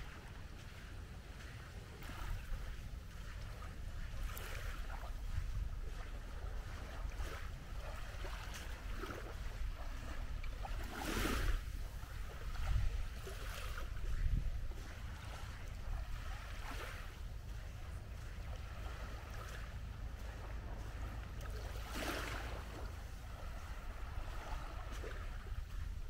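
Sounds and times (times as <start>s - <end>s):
waves washing onto beach: 0.0s - 26.0s
wind buffeting microphone: 0.0s - 26.0s.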